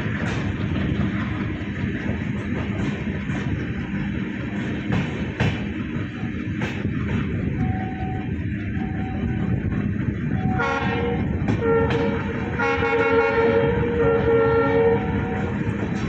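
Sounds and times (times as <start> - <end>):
train rumbling along track: 0.0 - 16.0
train horn blasts: 10.4 - 15.9.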